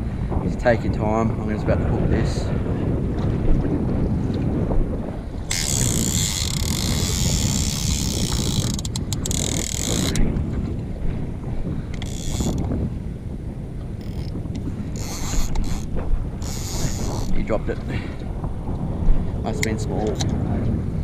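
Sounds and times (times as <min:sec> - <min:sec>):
wind and handling rumble: 0:00.0 - 0:21.0
fishing reel clicker buzzing: 0:05.4 - 0:10.2, 0:11.9 - 0:12.7, 0:14.0 - 0:17.4.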